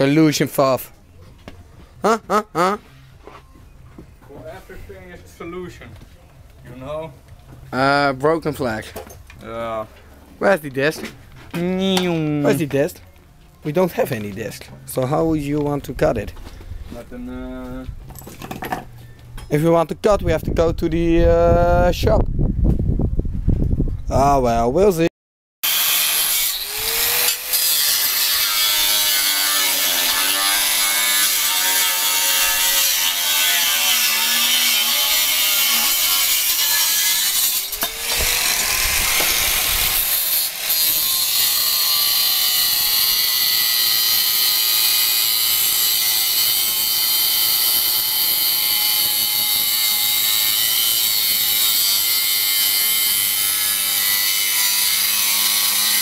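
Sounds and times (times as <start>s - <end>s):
angle grinder cutting steel: 25.6s - 56.0s.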